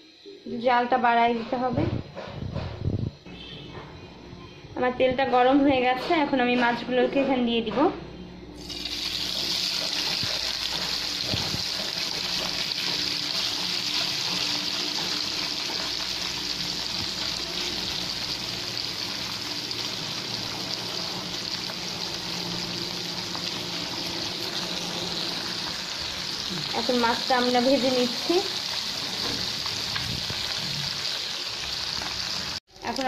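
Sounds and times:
fish sizzling in hot oil: 0:08.6 - 0:33.0.

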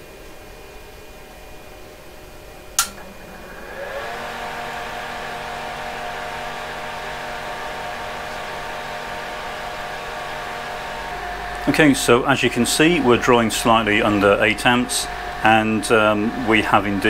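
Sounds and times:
cooling fan whirring: 0:00.0 - 0:17.0
power switch click: 0:02.8 - 0:03.2.

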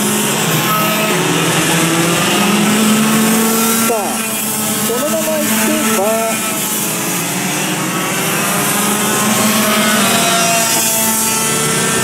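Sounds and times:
kart engines buzzing: 0:00.0 - 0:12.0.

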